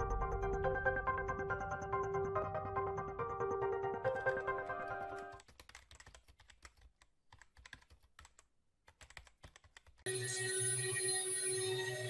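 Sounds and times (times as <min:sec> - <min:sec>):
keyboard typing clicks: 0:04.5 - 0:10.0.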